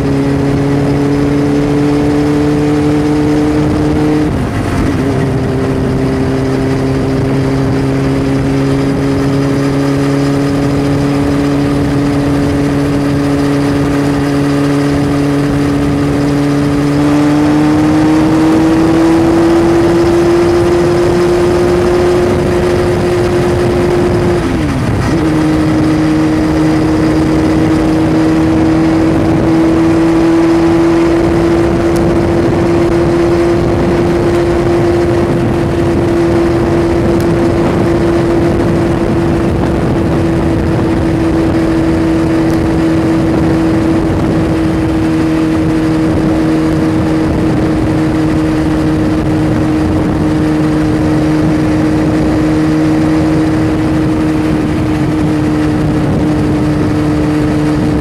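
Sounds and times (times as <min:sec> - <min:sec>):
road and wind noise: 0:00.0 - 0:58.0
vehicle engine droning: 0:00.0 - 0:58.0.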